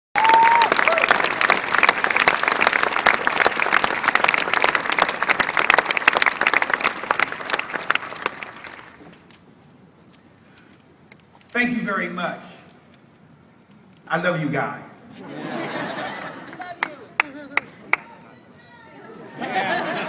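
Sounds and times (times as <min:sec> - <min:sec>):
crowd applauding: 0:00.2 - 0:09.0, 0:15.7 - 0:20.0.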